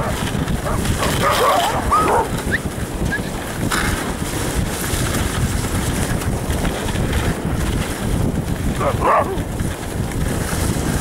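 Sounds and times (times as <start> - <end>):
sled runners hissing over snow: 0.0 - 11.0
wind rumble on microphone: 0.0 - 11.0.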